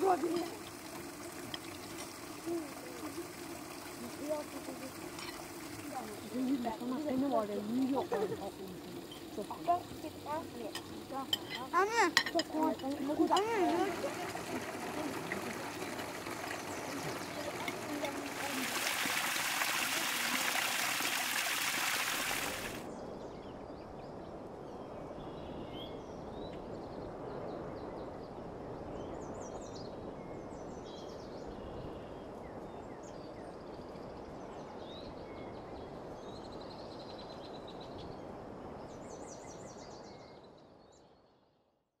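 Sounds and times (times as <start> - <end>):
birds chirping: 0.0 - 22.8
water rushing: 0.0 - 22.9.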